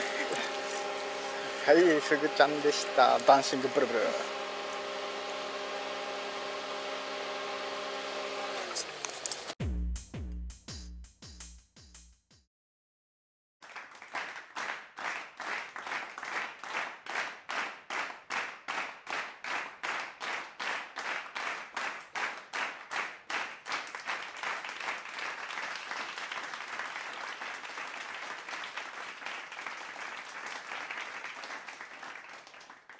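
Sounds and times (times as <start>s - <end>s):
crowd applause: 0.0s - 5.6s, 13.6s - 32.9s
crowd clapping in unison: 13.6s - 32.9s.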